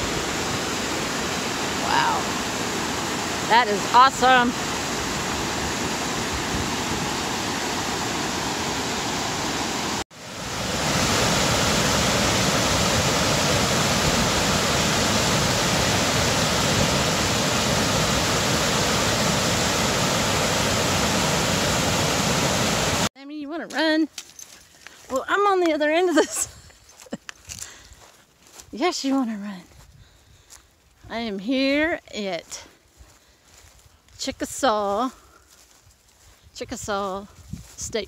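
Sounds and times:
close water cascade: 0:00.0 - 0:23.1
water rushing over rocks: 0:00.0 - 0:23.1.

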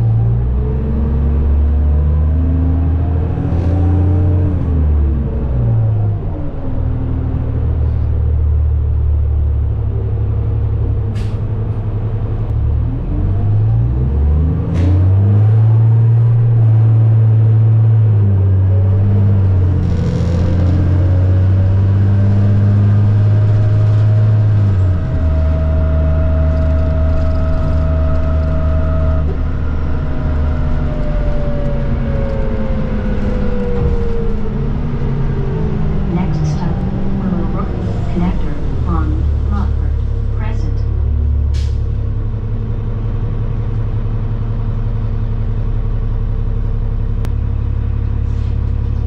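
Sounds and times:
bus engine: 0:00.0 - 0:49.0
whine: 0:24.7 - 0:42.6.

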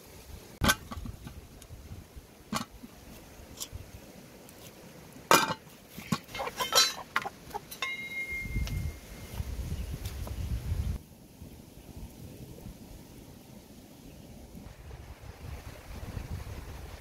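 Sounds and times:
metal pot clanking on stones: 0:05.3 - 0:08.6
chicken squawking: 0:06.3 - 0:07.7.

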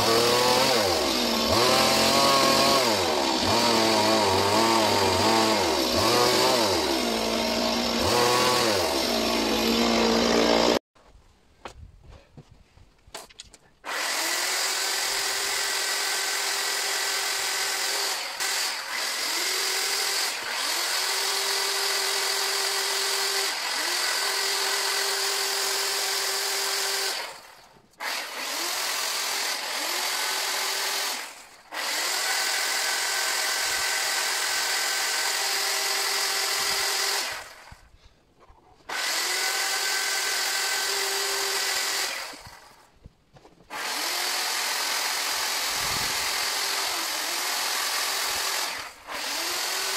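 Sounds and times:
chainsaw carving wood: 0:00.0 - 0:10.8, 0:13.8 - 0:49.9.

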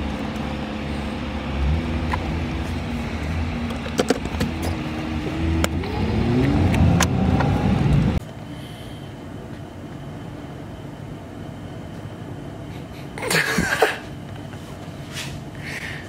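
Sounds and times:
car engine accelerating: 0:00.0 - 0:08.2.

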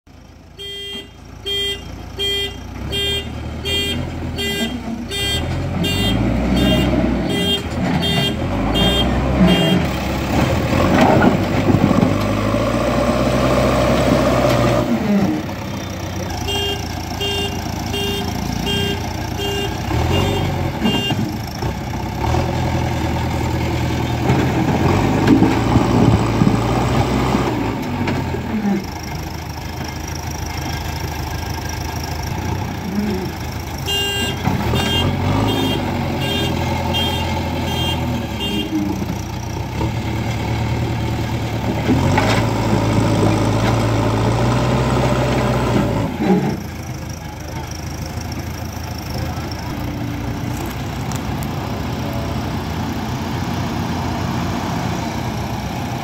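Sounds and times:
diesel engine revving: 0:00.2 - 0:56.0.

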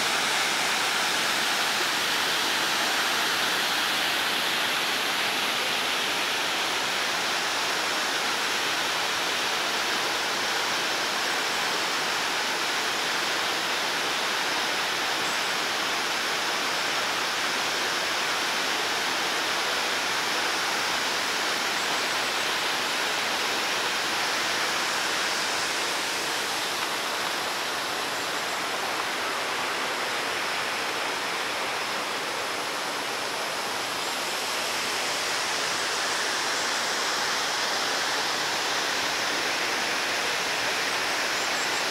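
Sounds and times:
fountain water splashing: 0:00.0 - 0:13.2.

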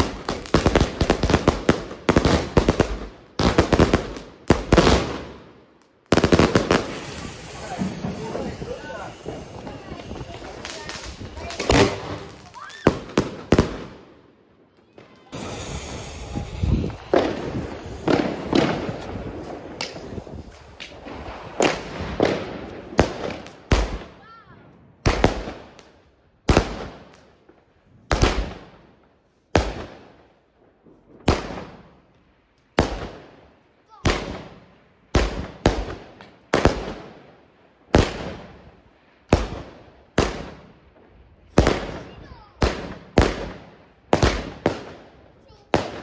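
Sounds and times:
firework shots thumping and cracking: 0:00.0 - 0:05.5, 0:06.1 - 0:14.2, 0:15.2 - 0:24.2, 0:25.0 - 0:27.4, 0:28.1 - 0:28.8, 0:29.5 - 0:30.2, 0:31.1 - 0:32.0, 0:32.7 - 0:37.3, 0:37.9 - 0:46.0.

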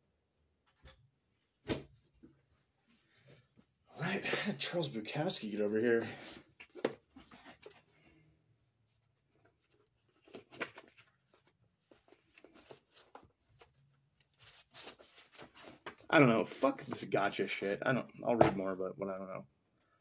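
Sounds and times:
book pages flipping: 0:09.2 - 0:17.8.

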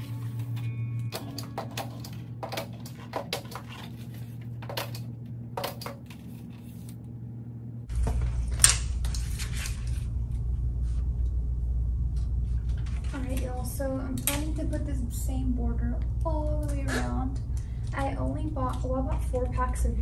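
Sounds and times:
paper strips rustling and clicking: 0:00.0 - 0:07.0, 0:08.0 - 0:10.1
room hum: 0:00.0 - 0:20.0.

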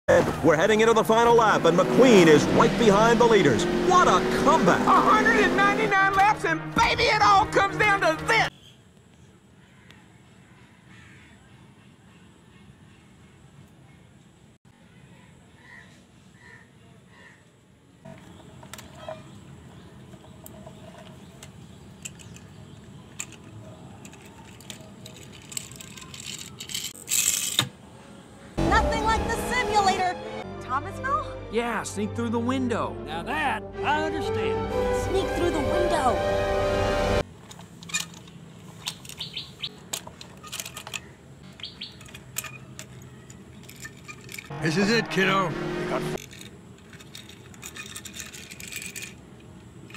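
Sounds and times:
toy car wheels rolling on concrete: 0:18.1 - 0:27.6, 0:39.9 - 0:44.5, 0:46.2 - 0:49.9.

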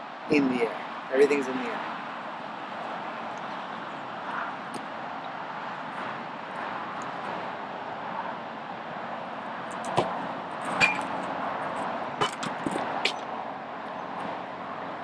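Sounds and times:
steady background noise: 0:00.0 - 0:15.0
soccer ball kicked: 0:09.9 - 0:10.2
ball clanging off metal crossbar: 0:10.8 - 0:11.2.

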